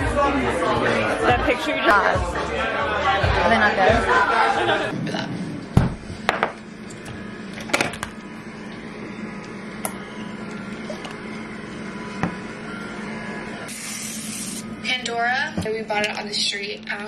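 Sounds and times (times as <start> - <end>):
steady low hum: 4.9 - 17.0.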